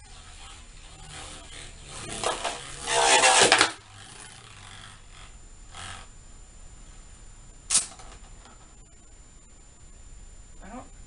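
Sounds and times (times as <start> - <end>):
spinning top rattling on plastic: 2.0 - 4.9.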